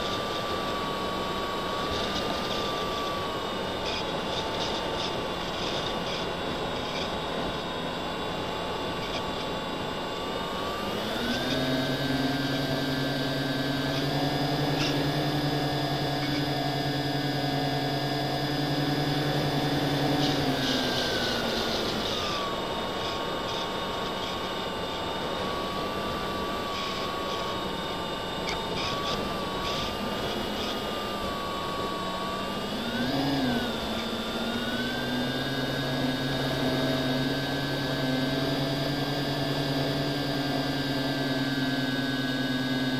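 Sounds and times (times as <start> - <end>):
model aircraft motor whine: 0.0 - 42.9.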